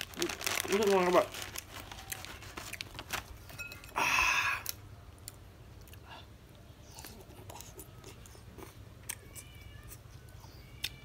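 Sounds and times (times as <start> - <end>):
soft chewing: 4.6 - 11.0.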